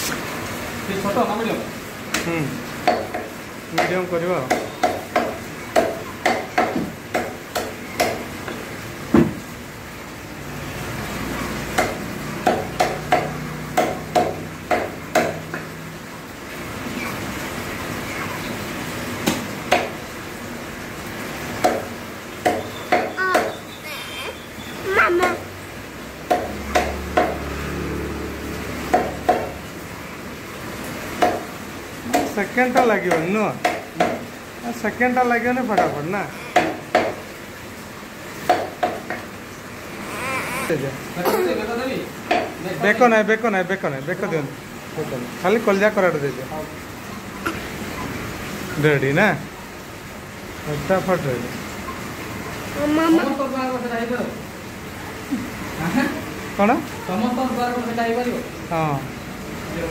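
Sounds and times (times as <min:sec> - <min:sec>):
cleaver chopping meat on wooden block: 0:02.8 - 0:08.3, 0:11.7 - 0:15.6, 0:19.2 - 0:20.0, 0:21.6 - 0:23.6, 0:26.3 - 0:27.5, 0:28.9 - 0:29.6, 0:31.2 - 0:31.5, 0:32.1 - 0:34.3, 0:35.7 - 0:37.2, 0:38.4 - 0:39.3.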